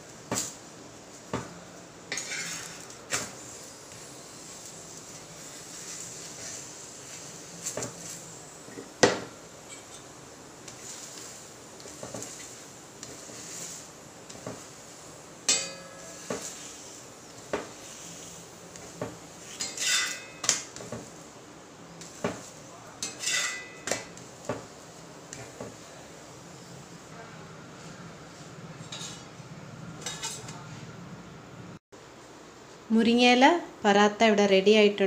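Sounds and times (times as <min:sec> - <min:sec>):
metal spatula scraping on griddle: 0:02.1 - 0:09.0, 0:09.6 - 0:21.2, 0:22.0 - 0:25.8, 0:28.7 - 0:29.4, 0:30.0 - 0:30.8.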